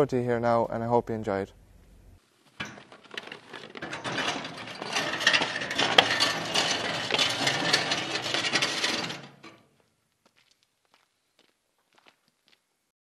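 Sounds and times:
metal spreader scraping on concrete: 2.6s - 9.7s.

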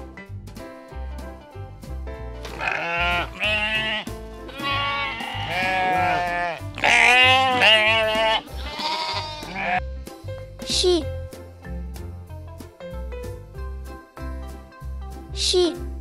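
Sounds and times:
background music with steady beat: 0.0s - 16.0s
sheep bleating: 2.5s - 9.8s.

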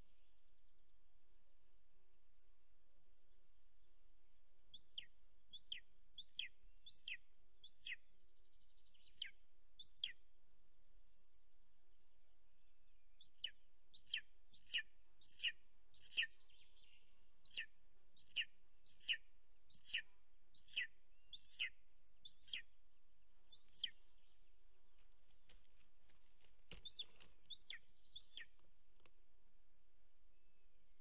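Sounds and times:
eagle whistled calls: 13.2s - 16.3s, 17.5s - 22.6s.

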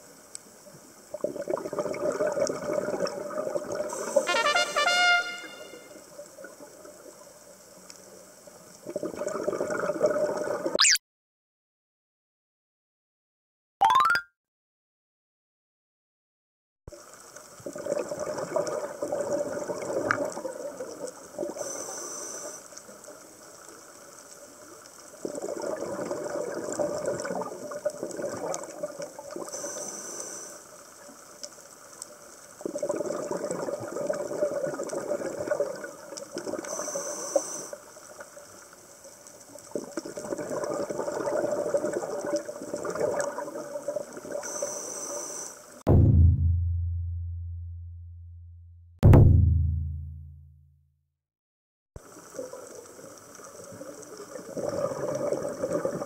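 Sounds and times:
exhaled bubbles gurgling: 1.1s - 4.1s, 8.8s - 10.8s, 17.6s - 21.7s, 25.2s - 29.5s, 32.6s - 36.8s, 39.7s - 44.5s, 52.0s - 56.0s.

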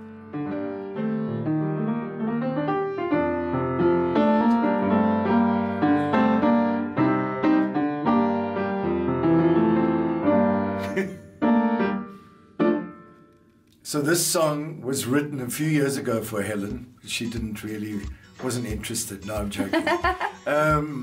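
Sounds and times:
upright piano chords and melody: 0.0s - 13.6s.

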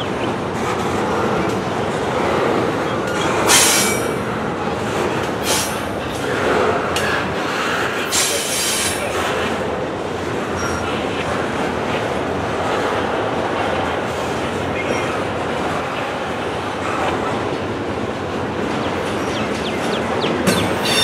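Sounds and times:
steel wheels rolling on rail: 0.0s - 21.0s
high-pitched wheel squeals: 20.6s - 21.0s.

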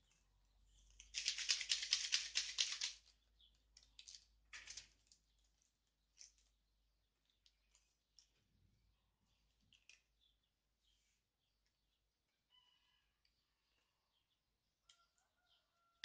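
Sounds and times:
powder sachet shaken: 1.0s - 3.1s, 3.9s - 5.2s
packet crinkling: 3.8s - 6.5s.

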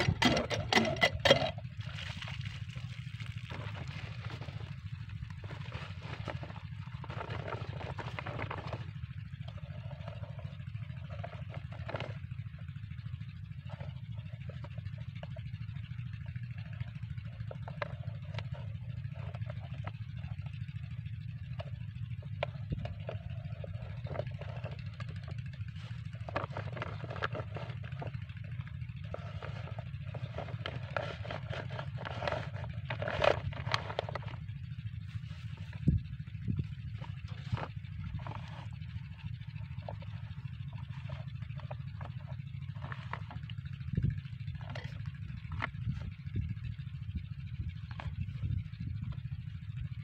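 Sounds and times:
plastic hose crinkling: 0.0s - 12.3s, 21.5s - 46.1s
small diesel engine running: 0.0s - 50.0s.

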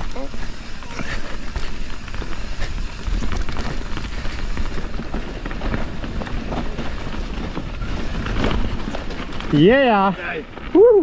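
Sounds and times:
bike rattling: 0.0s - 11.0s
tyres rolling over dirt: 0.0s - 11.0s.

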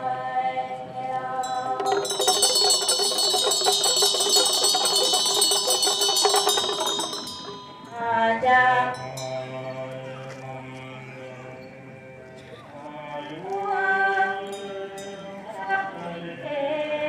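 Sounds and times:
metal percussion ringing roll: 1.4s - 9.7s.

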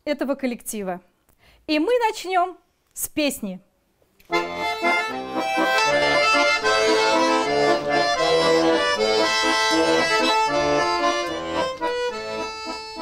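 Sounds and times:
button accordion playing: 4.3s - 13.0s.

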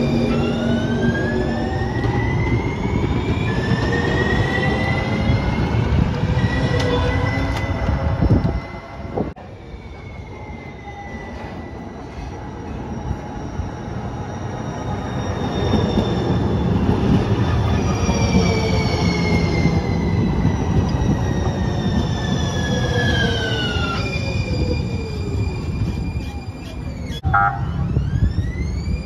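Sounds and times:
trolley train rumbling: 0.0s - 29.0s
steel wheel squeal: 17.5s - 27.2s.

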